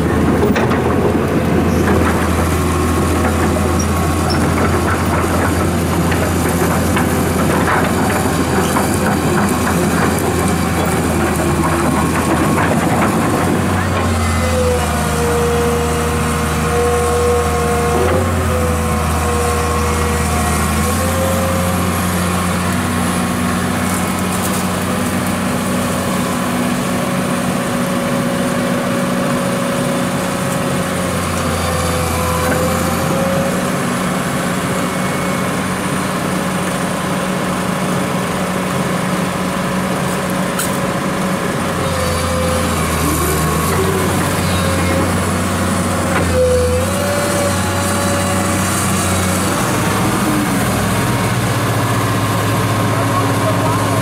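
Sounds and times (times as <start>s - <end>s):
excavator diesel engine running: 0.0s - 54.0s
hydraulic whine: 41.7s - 54.0s.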